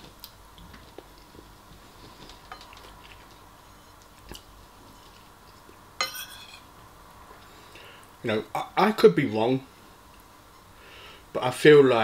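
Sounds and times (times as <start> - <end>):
soft chewing: 0.0 - 5.9
spoon scraping in bowl: 6.0 - 6.7.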